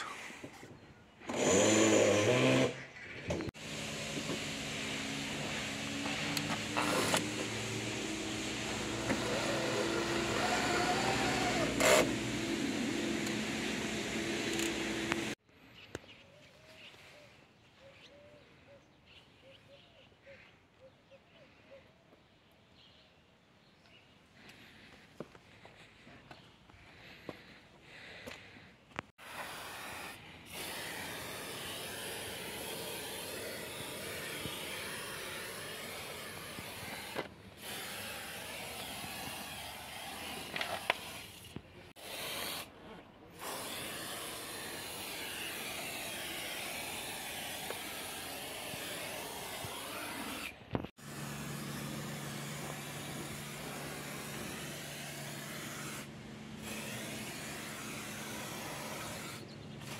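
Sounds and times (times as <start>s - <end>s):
aerosol spray hissing: 29.2s - 42.7s, 43.4s - 56.1s.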